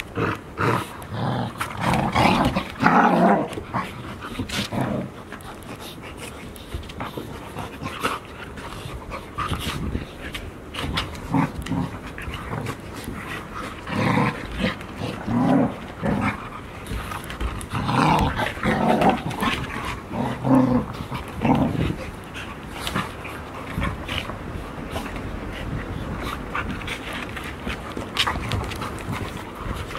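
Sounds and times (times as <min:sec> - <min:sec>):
puppies growling: 0:00.0 - 0:29.9
scuffling clicks: 0:20.8 - 0:25.3, 0:26.0 - 0:29.9.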